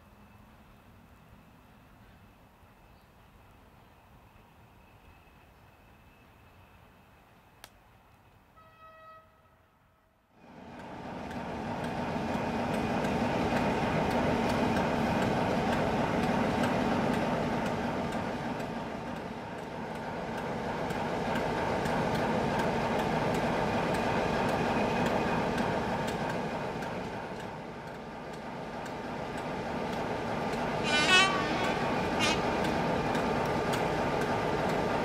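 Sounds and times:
diesel locomotive engine droning: 0.0 - 35.0
light ticking: 10.8 - 30.8, 32.5 - 35.0.

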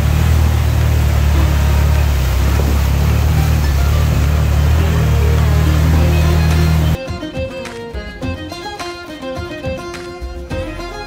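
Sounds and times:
utility vehicle engine running: 0.0 - 7.0
water churning: 0.0 - 7.0.

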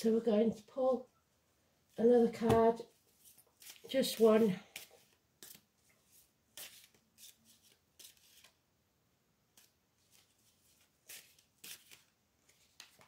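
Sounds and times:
cards being shuffled: 2.4 - 8.6, 9.5 - 13.0.

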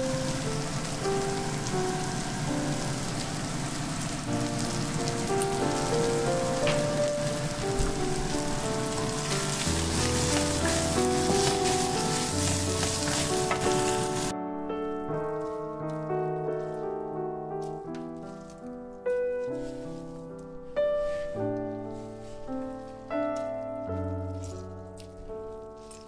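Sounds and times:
meat sizzling in a frying pan: 0.0 - 14.3
wooden spatula stirring and scraping: 0.0 - 14.3, 15.2 - 26.0
soft background music: 0.0 - 26.0.

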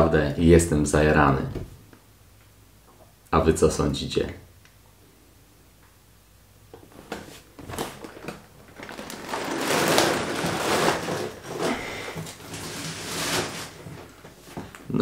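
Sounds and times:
cardboard box scraping on table: 9.3 - 14.3.

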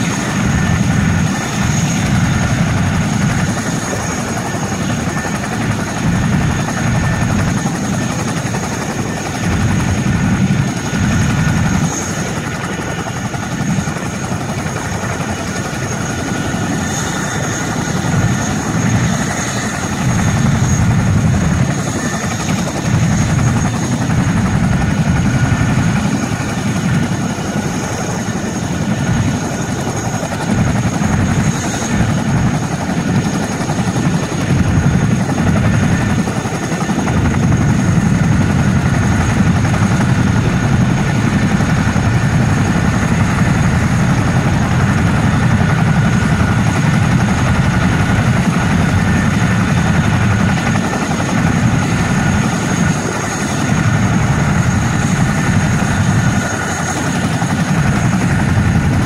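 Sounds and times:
helicopter rotor thrum: 0.0 - 59.0
high turbine whine: 0.0 - 59.0.

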